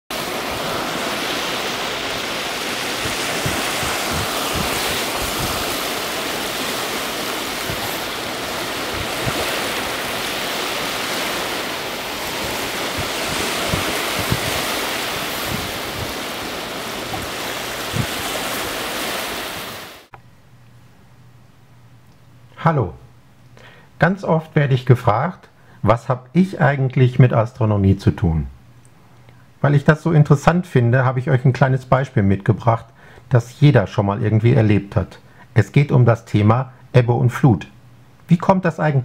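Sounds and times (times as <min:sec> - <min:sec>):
waves rushing on shore: 0:00.1 - 0:20.1
low thumps: 0:02.8 - 0:18.8.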